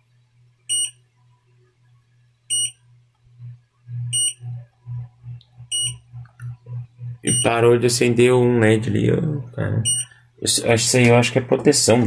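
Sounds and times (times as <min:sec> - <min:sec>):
high electronic beeps: 0:00.7 - 0:01.0, 0:02.5 - 0:02.8, 0:03.4 - 0:07.8, 0:09.8 - 0:10.2
low motor hum: 0:02.5 - 0:10.2.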